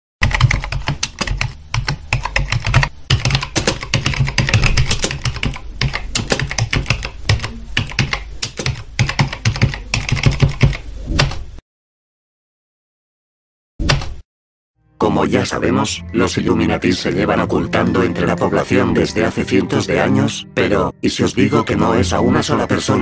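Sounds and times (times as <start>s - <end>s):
fast keyboard typing: 0.2s - 11.4s.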